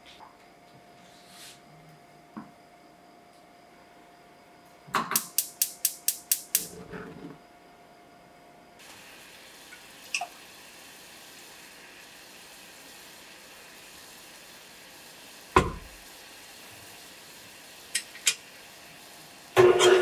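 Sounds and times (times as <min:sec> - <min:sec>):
gas stove igniter clicking: 0:05.0 - 0:06.7, 0:17.9 - 0:18.4
gas flame lighting with rush: 0:05.0 - 0:07.4, 0:08.8 - 0:20.0.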